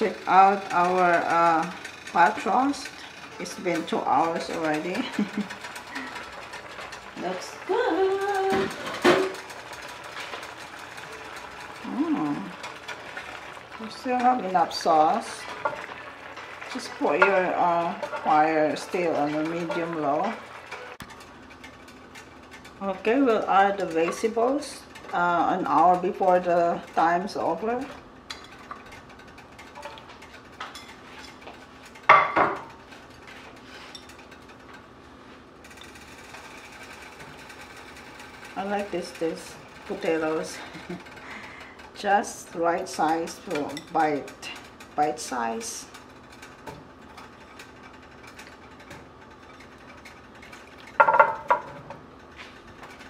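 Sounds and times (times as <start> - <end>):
vegetables clinking in roasting pan: 0.0 - 35.0, 35.6 - 53.0
sauce simmering with popping: 9.3 - 22.7
metallic clanks of cookware: 28.3 - 32.8, 50.8 - 53.0.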